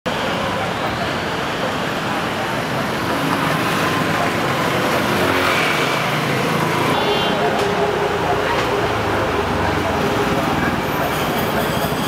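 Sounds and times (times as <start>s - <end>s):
road traffic: 0.1s - 12.0s.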